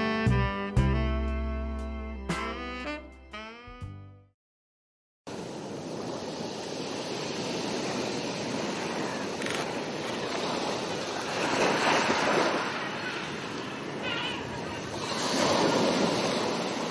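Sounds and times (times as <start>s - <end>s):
small waves washing on sand: 5.3s - 16.9s.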